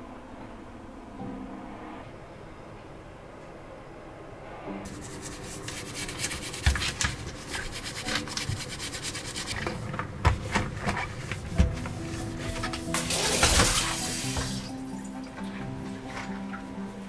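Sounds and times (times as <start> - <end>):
scrubbing on hard surface: 4.9 - 9.7.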